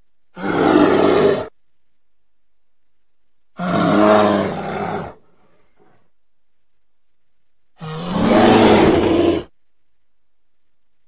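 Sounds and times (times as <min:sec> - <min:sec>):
bear calling: 0:03.6 - 0:06.0, 0:07.8 - 0:09.5.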